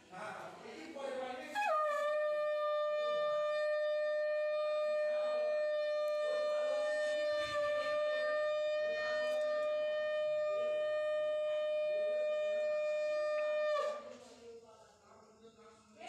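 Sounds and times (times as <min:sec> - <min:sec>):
conch shell blown: 0:01.5 - 0:14.2.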